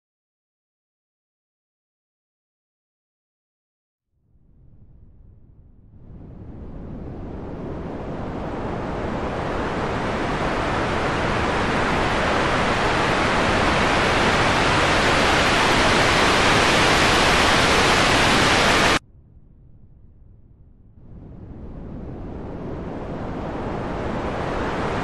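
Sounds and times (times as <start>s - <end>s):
rushing hissing noise: 9.8s - 19.0s.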